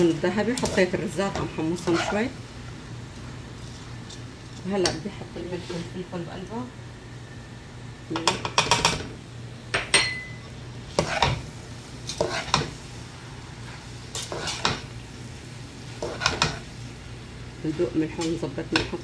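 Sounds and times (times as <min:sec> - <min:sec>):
spoon scraping rice in pot: 0:00.5 - 0:02.3, 0:10.9 - 0:11.4, 0:12.1 - 0:12.7, 0:14.2 - 0:14.8
short ringing clink: 0:09.9 - 0:10.4.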